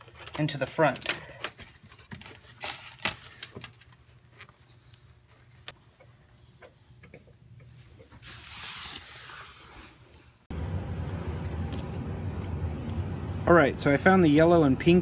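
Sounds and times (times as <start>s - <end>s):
hands handling wiring and plastic trim: 0.0s - 5.8s
faint steady hum: 10.1s - 15.0s.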